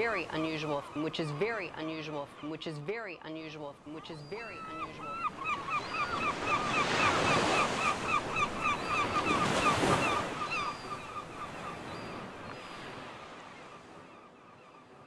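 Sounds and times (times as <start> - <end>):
ocean surf breaking: 0.0 - 2.4, 4.5 - 14.0.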